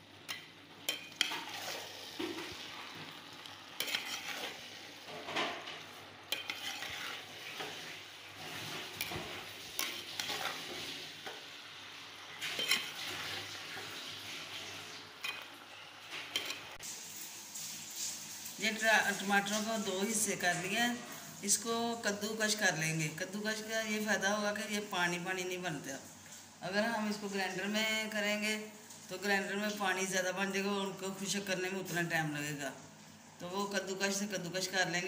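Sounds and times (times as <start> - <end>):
potatoes sizzling in hot oil: 0.0 - 35.0
metal spoon scraping pot: 0.3 - 2.7, 3.4 - 11.4, 12.4 - 13.4.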